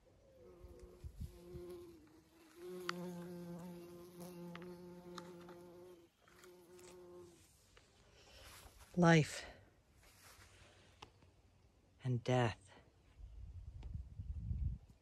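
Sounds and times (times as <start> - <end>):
bee buzzing in flight: 0.4 - 7.4.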